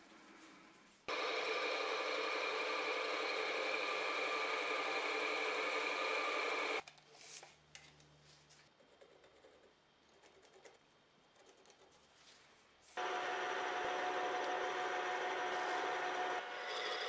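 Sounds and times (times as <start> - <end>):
lathe cutting wood: 1.1 - 6.8, 13.0 - 17.0.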